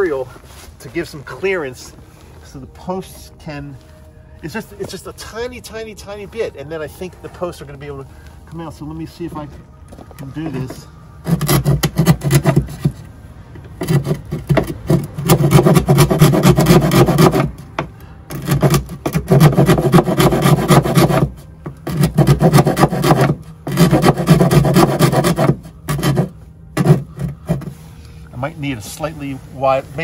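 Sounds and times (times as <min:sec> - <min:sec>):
hand file rasping: 0:10.4 - 0:13.1, 0:13.8 - 0:17.6, 0:18.3 - 0:27.7.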